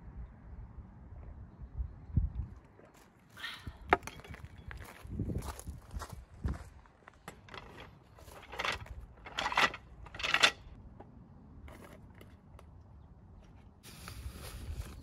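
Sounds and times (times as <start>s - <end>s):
footsteps crunching on gravel: 4.1s - 9.0s.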